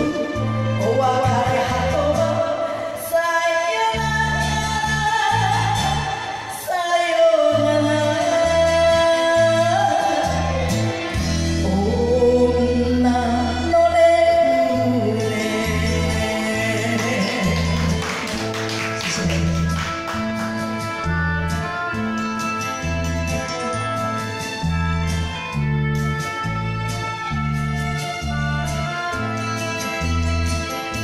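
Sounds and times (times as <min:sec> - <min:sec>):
woman singing with vibrato: 0:00.0 - 0:18.4
karaoke backing track: 0:00.0 - 0:31.0.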